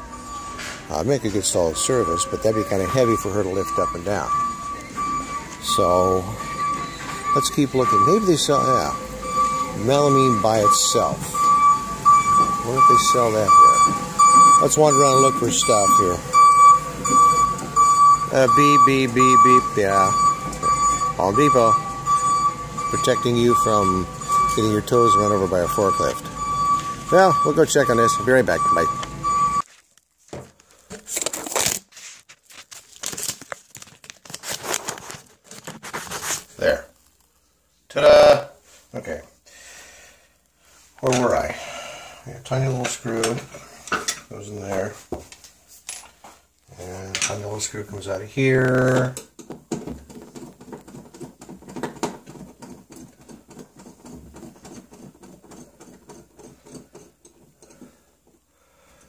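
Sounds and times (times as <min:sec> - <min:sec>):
rustling and crinkling: 0:29.6 - 0:37.5.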